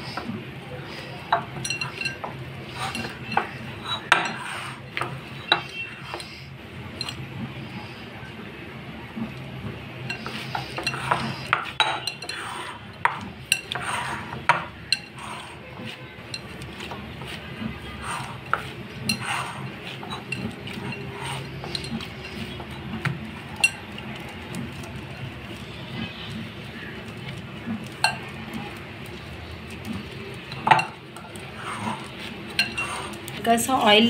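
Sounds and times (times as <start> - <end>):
clinks against glass bowl: 1.3 - 6.4, 10.1 - 15.4, 30.5 - 33.2
dough squashing and rubbing: 9.0 - 34.0.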